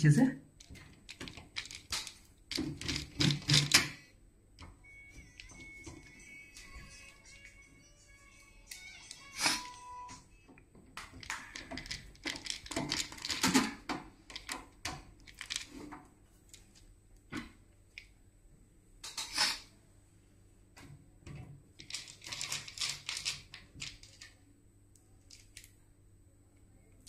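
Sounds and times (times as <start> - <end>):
metallic clicks and clatter: 0.6 - 3.9, 11.0 - 15.8, 21.8 - 24.4.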